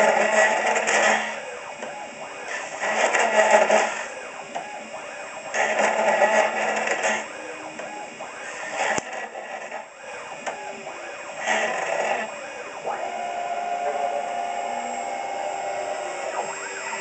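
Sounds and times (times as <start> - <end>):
machine running: 0.0 - 17.0
router cutting into wood: 2.5 - 4.3, 8.4 - 9.9, 11.1 - 17.0.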